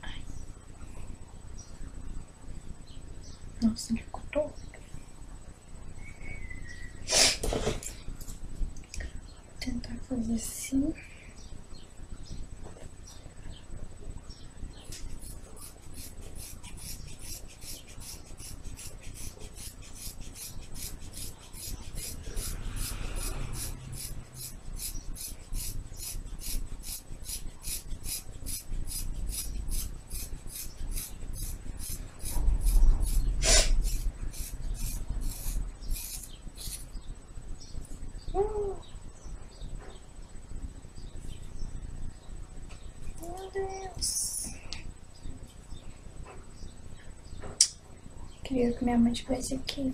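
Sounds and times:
scissors snipping through hair: 14.9s - 36.8s.

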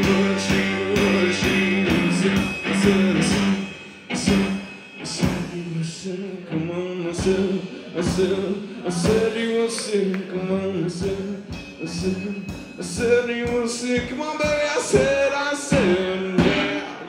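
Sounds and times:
steady beat: 0.0s - 5.9s, 7.1s - 17.0s
electric guitar: 0.0s - 11.0s, 14.9s - 17.0s
man singing: 0.0s - 17.0s.

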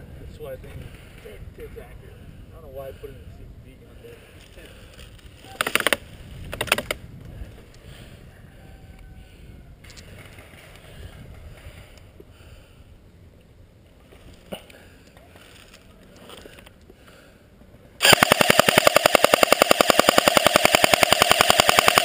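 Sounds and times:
wind rumble on microphone: 0.0s - 4.4s, 5.0s - 13.0s
automatic airsoft gunfire bursts: 18.0s - 22.0s.

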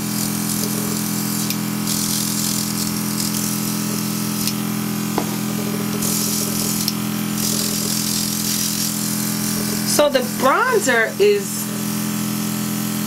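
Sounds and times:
airbrush hissing air: 0.0s - 12.2s
airbrush compressor humming: 0.0s - 13.0s.

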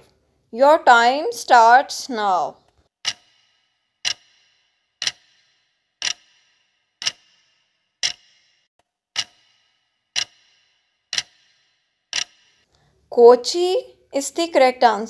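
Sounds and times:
countdown timer ticks: 3.0s - 12.7s.

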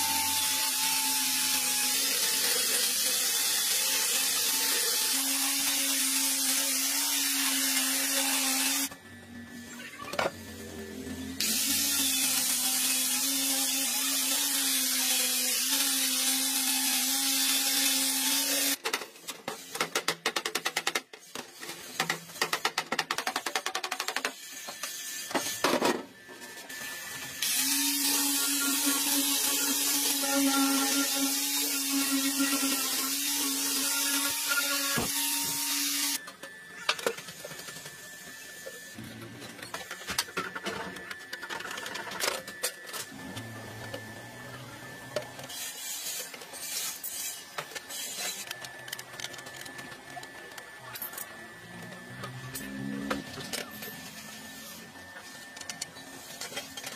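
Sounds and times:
angle grinder on sheet metal: 0.0s - 8.9s, 10.6s - 18.8s, 26.8s - 36.2s, 44.6s - 48.5s
angle grinder motor whine: 24.6s - 56.9s.

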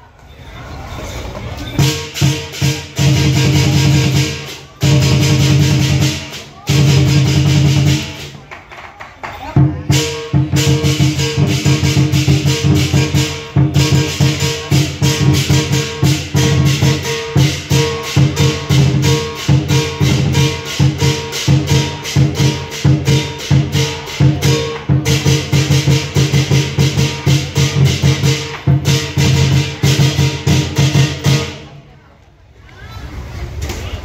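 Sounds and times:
crashing cymbals: 1.8s - 8.3s, 9.9s - 31.6s
drum beating fast rhythm: 1.8s - 31.7s.

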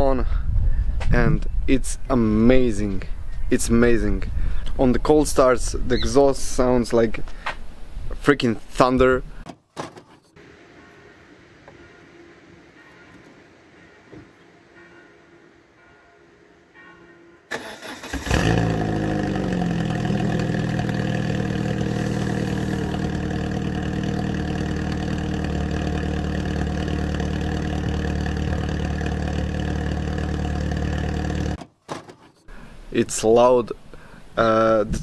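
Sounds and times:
car engine idling: 17.8s - 31.6s.

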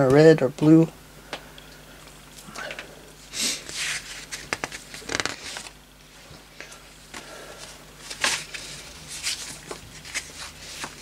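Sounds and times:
paper pages rustling: 3.7s - 5.8s, 8.0s - 11.0s.

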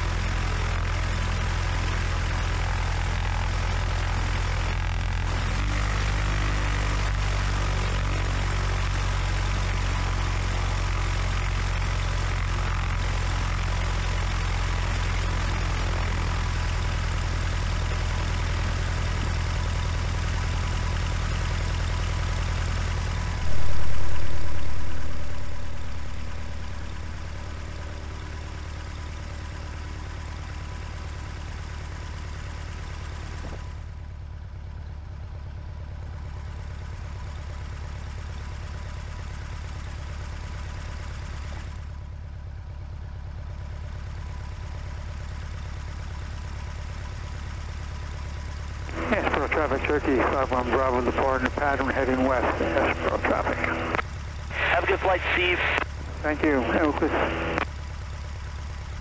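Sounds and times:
light aircraft engine idling: 0.0s - 59.0s.

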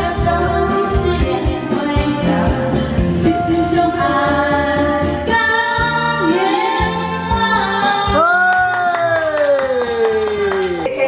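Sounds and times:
woman singing karaoke: 0.0s - 8.8s.

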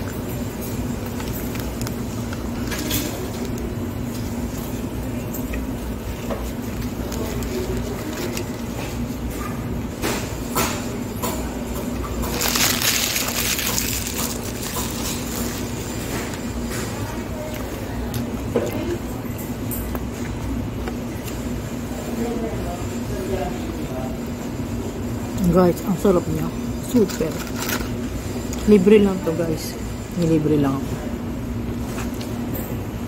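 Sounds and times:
paper wrapper crinkling: 6.2s - 8.8s, 12.2s - 16.0s.

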